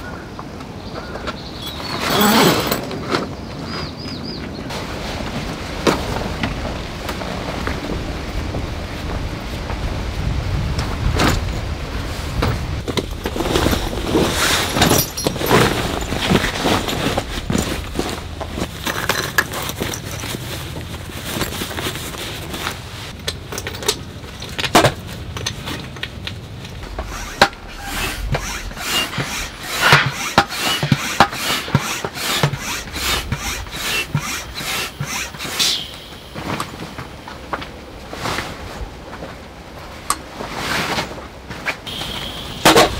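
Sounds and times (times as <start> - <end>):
tent poles clattering: 10.8 - 39.5
tent fabric rustling: 11.7 - 18.8, 19.5 - 23.2.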